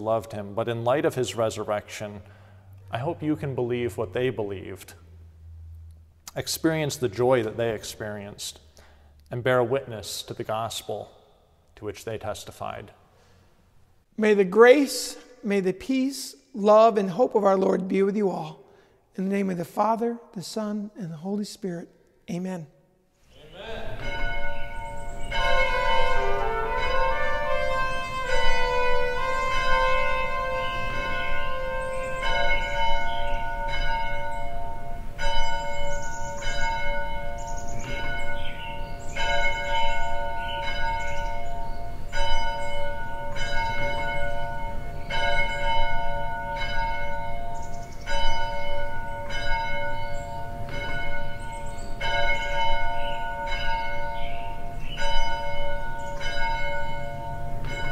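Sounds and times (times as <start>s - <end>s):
church bell ringing: 23.6s - 57.9s.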